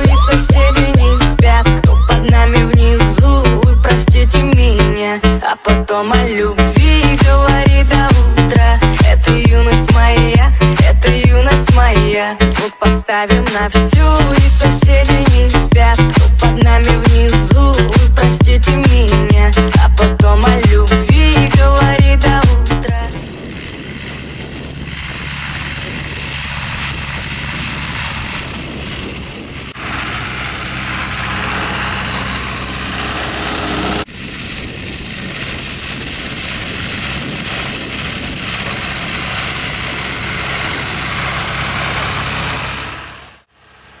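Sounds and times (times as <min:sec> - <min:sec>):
tractor diesel engine running: 0:00.0 - 0:44.0
broad rushing noise: 0:13.5 - 0:43.5.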